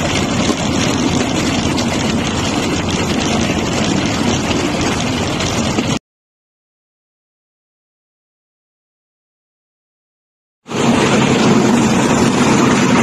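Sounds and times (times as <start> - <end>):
engine drone: 0.0 - 6.0, 10.7 - 13.0
wheels rattling on track: 0.0 - 6.0, 10.7 - 13.0.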